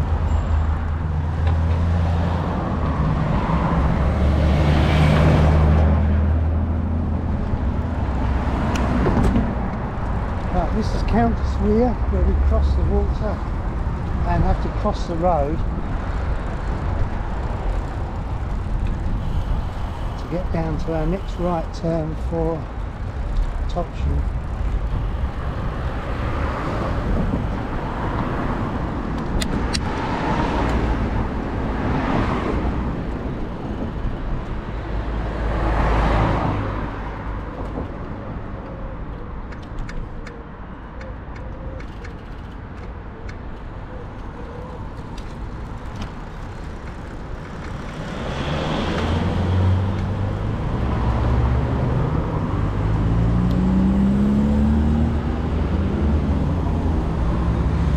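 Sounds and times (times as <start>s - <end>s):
cars passing: 0.0s - 57.9s
engine pulling away: 47.4s - 57.9s.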